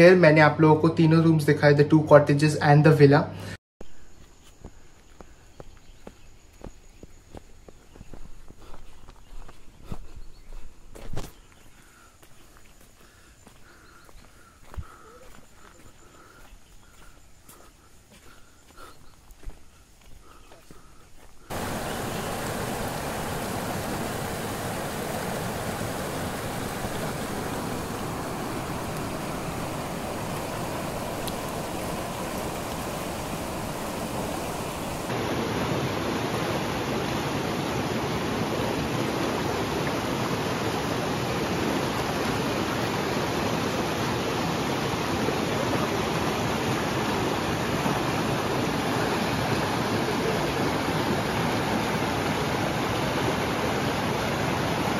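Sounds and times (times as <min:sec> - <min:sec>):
river water rushing: 0:21.5 - 0:54.9.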